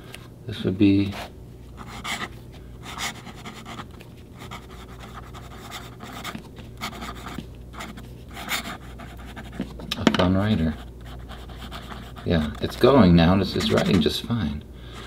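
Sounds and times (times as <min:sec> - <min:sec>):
pen nib scratching paper: 0:01.8 - 0:09.7, 0:10.4 - 0:14.3.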